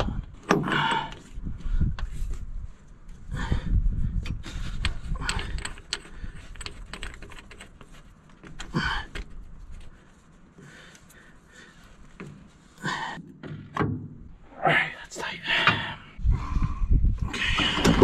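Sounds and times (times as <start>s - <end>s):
heavy breaths: 3.2s - 6.8s, 8.7s - 13.3s, 14.5s - 18.0s
metallic clicks and rattles: 4.2s - 9.4s.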